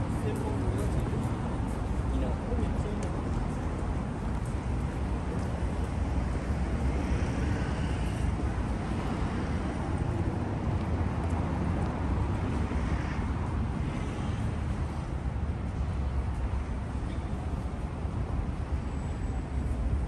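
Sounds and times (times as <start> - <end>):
passing cars drone: 3.5 - 16.9.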